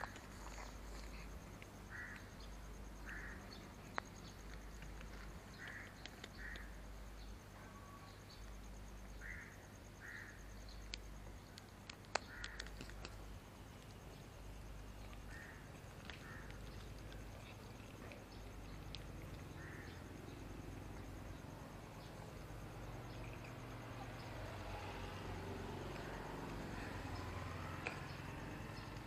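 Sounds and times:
distant crows cawing: 1.8s - 3.6s, 5.5s - 6.8s, 9.2s - 10.5s, 12.2s - 12.7s, 15.2s - 16.6s, 19.4s - 21.4s
cat eating clicks: 3.9s - 6.7s, 11.6s - 13.2s, 27.8s - 29.0s.

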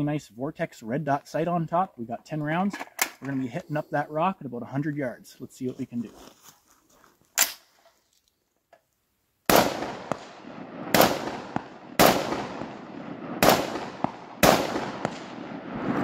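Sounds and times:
rifle shots echoing: 9.5s - 16.0s.

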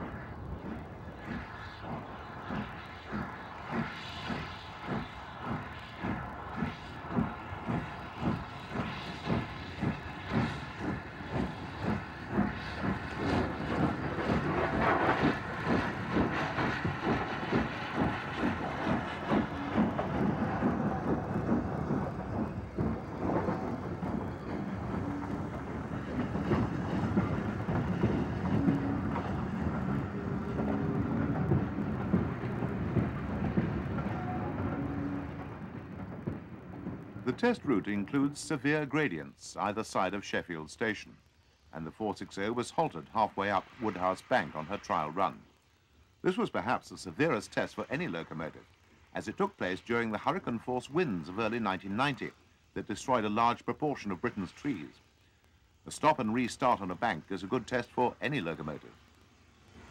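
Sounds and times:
steam locomotive exhaust beats: 0.0s - 40.0s
train rumbling past: 0.0s - 40.7s.

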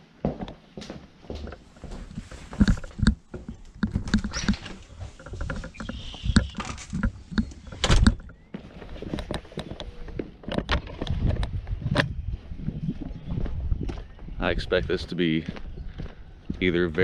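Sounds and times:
door clicks and knocks: 3.8s - 8.3s
door shutting with thump: 7.8s - 8.2s
footsteps on brick: 15.4s - 17.0s.

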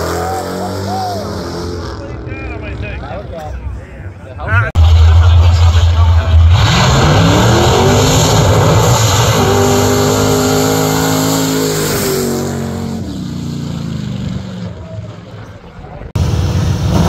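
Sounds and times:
racing engines at full throttle: 0.0s - 17.0s.

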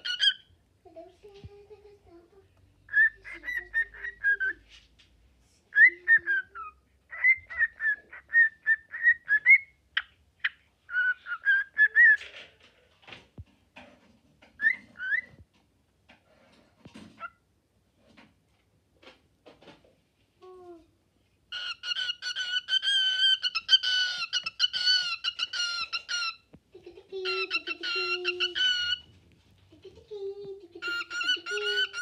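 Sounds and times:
cockatiel whistling: 2.9s - 4.6s, 5.8s - 9.7s, 10.9s - 12.2s, 14.6s - 15.4s, 21.6s - 26.4s, 27.3s - 29.1s.

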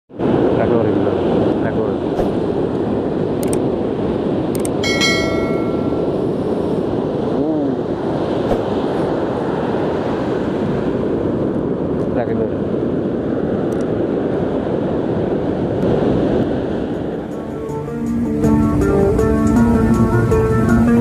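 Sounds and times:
surf rumble: 0.1s - 21.0s
wind on microphone: 0.1s - 21.0s
short bright chime: 4.8s - 6.3s.

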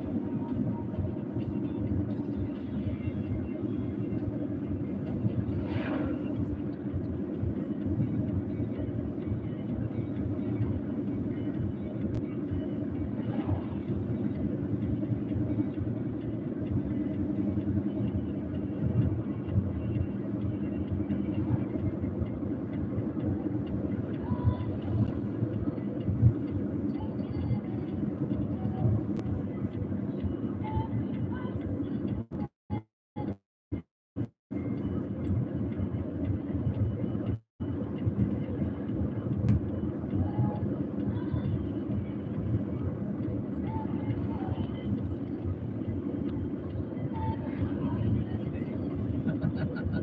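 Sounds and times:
vehicle road and engine rumble: 0.0s - 50.0s.

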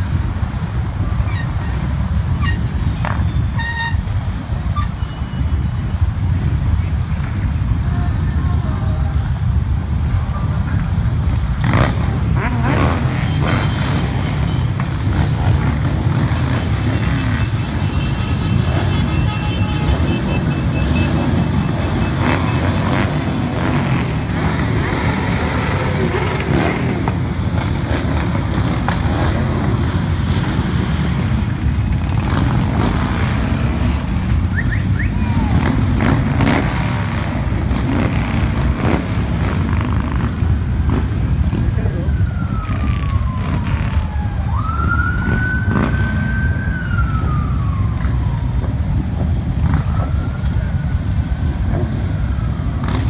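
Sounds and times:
motorcycle engines running: 0.0s - 53.0s
passing car traffic: 0.0s - 53.0s.

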